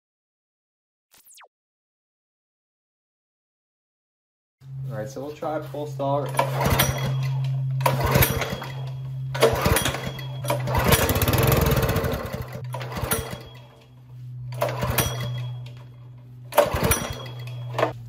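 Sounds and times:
steady low hum: 0:04.6 - 0:18.0
gas engine pull-started and sputtering: 0:06.1 - 0:13.8, 0:14.5 - 0:18.0.

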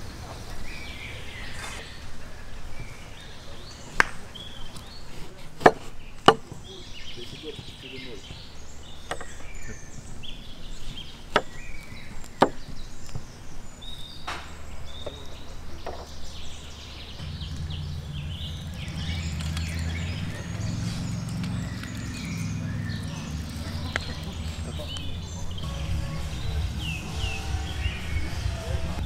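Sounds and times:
steady low hum: 0:16.5 - 0:29.0.

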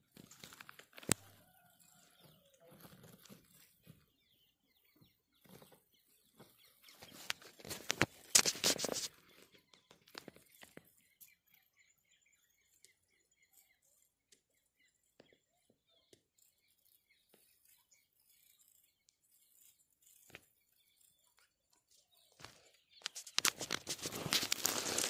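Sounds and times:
rustling and crackling of grass: 0:00.0 - 0:01.3, 0:06.4 - 0:10.9, 0:22.3 - 0:25.0.

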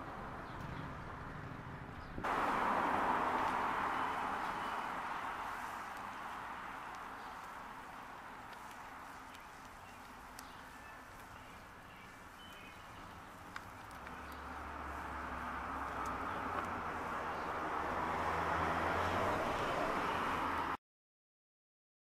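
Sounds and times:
faint birdsong: 0:00.2 - 0:20.5
faint crackles: 0:02.2 - 0:20.7.

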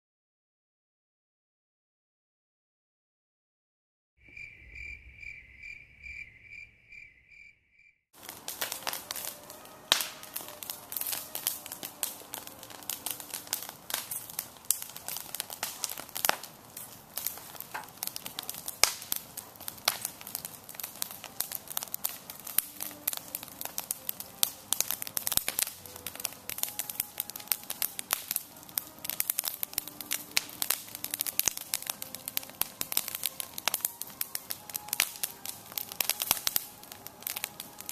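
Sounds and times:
cricket chirping: 0:04.2 - 0:08.0
campfire crackling and popping: 0:08.2 - 0:37.9.

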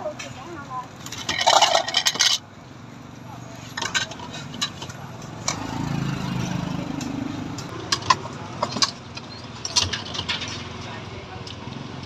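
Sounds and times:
bowls and utensils clinking: 0:01.0 - 0:02.4, 0:03.6 - 0:05.6.

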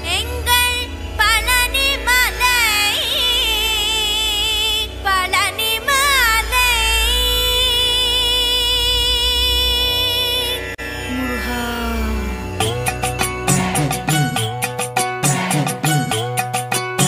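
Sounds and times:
devotional song ornamented melody: 0:00.0 - 0:17.0
deep steady bass: 0:11.0 - 0:17.0.

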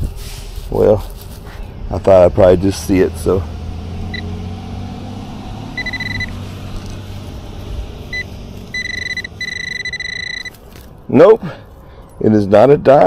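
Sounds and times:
metal detector beeping: 0:05.8 - 0:06.9, 0:08.1 - 0:10.6.

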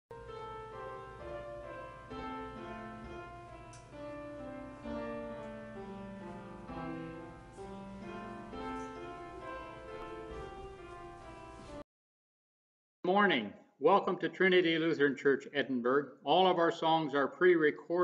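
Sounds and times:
slow instrumental music: 0:00.2 - 0:11.8.

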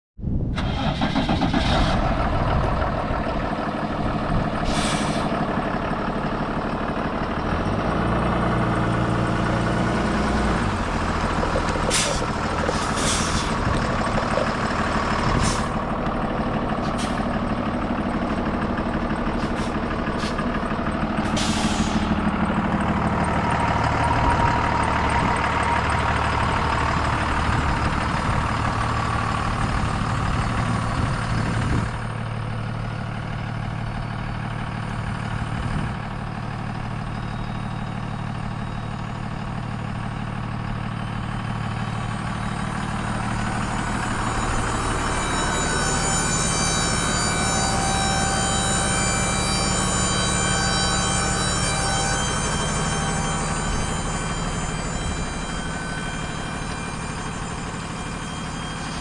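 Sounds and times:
truck diesel engine running: 0:00.3 - 0:59.0
sharp air hisses: 0:04.6 - 0:05.3, 0:21.3 - 0:22.2.

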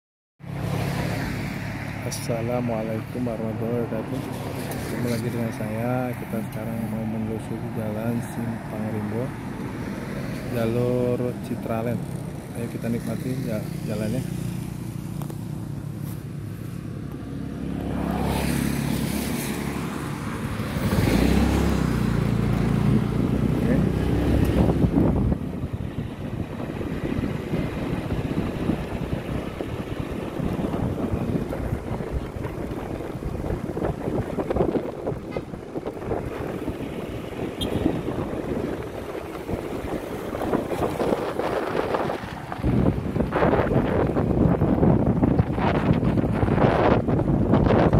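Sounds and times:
road noise: 0:00.4 - 0:47.9
vehicle engine humming: 0:00.4 - 0:47.9
motorcycle running: 0:08.0 - 0:47.9
wind noise: 0:17.8 - 0:47.9.

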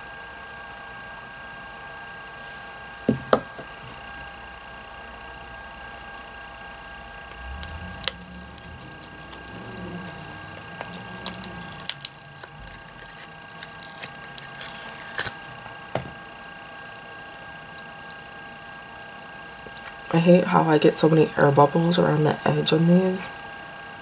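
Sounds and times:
faint high whine: 0:01.0 - 0:24.0
silicone mold rubbing and squeaking: 0:07.4 - 0:15.4.

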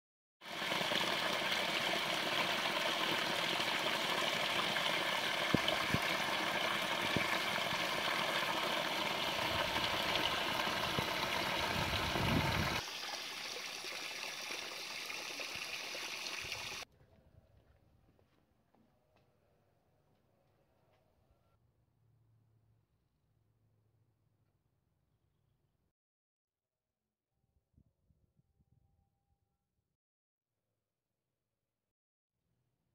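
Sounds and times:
waterfall splashing onto stones: 0:00.4 - 0:16.8.

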